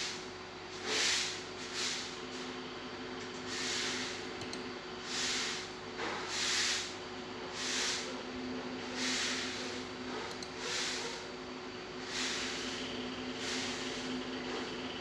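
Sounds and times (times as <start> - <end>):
faint steady hum: 0.0 - 15.0
airy breathing puffs: 9.0 - 11.2.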